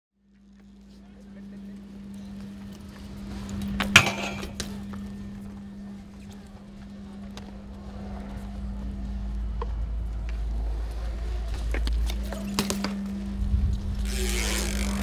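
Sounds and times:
bike rolling on concrete: 0.2 - 15.0
steady hum: 0.2 - 15.0
bike clicks and knocks: 2.1 - 7.6, 9.5 - 15.0.

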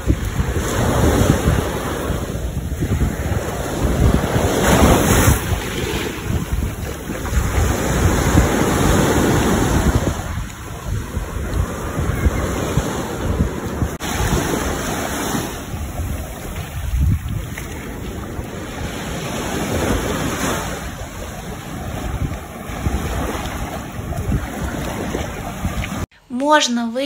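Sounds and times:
ocean surf washing onto beach: 0.0 - 26.1
wind rumbling on microphone: 0.0 - 26.1.

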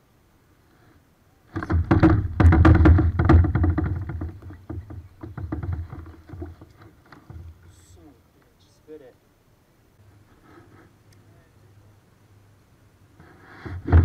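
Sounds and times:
fishing gear knocking and rattling: 1.5 - 7.7.

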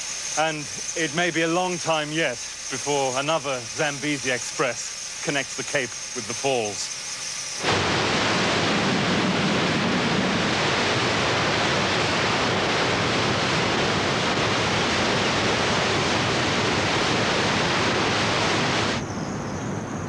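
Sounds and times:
waterfall rushing: 7.6 - 19.0.

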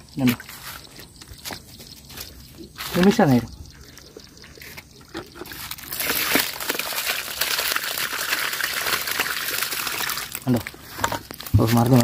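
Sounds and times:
fish landing in basket: 5.5 - 8.0
water splashing through mesh: 5.5 - 12.0.

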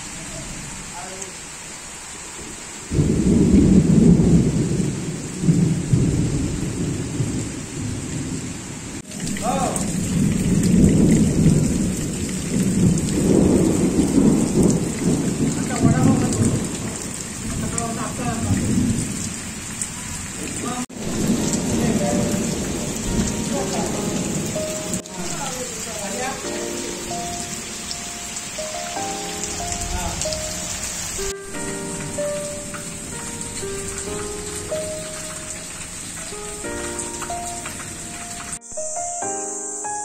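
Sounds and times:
heavy rain falling: 0.0 - 39.0
deep thunder rolling: 2.9 - 28.7.

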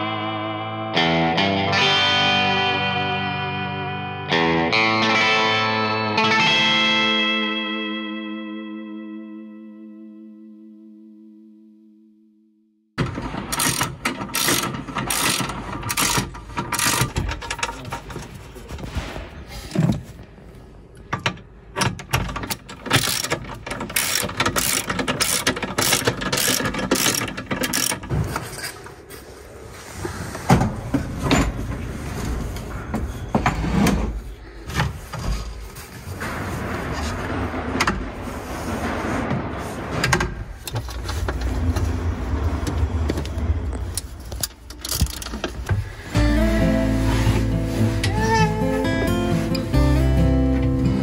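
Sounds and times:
metal clicks and clanks: 13.0 - 19.0, 20.9 - 29.0, 42.7 - 45.8
ratchet clicking: 13.5 - 17.2, 22.5 - 28.0.

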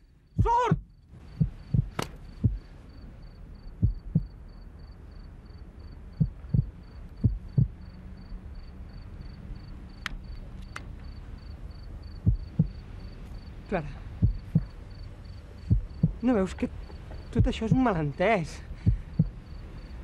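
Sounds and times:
low hum: 0.0 - 20.0
heartbeat double thumps: 0.4 - 2.7, 3.8 - 4.4, 6.1 - 7.9, 12.2 - 12.9, 14.2 - 14.8, 15.6 - 16.2, 16.9 - 18.0, 18.8 - 19.6.

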